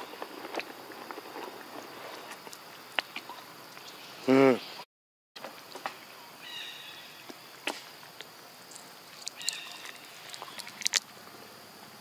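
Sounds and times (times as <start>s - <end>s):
faint outdoor background: 0.0s - 12.0s
high chirping calls: 9.2s - 10.9s.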